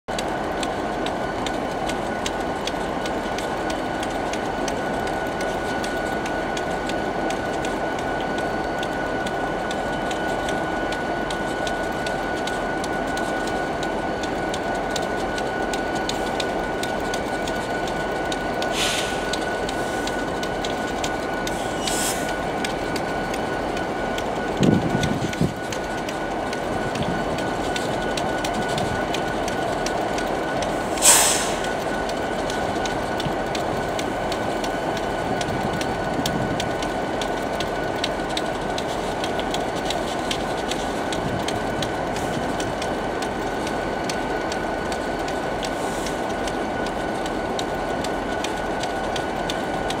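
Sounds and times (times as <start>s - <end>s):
diesel locomotives running: 0.1s - 50.0s
loud hiss: 30.9s - 31.6s.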